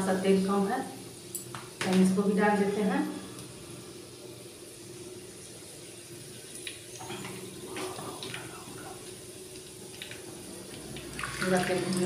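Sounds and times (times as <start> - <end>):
oil bubbling: 2.7 - 12.0
oil pouring into pot: 9.1 - 12.0.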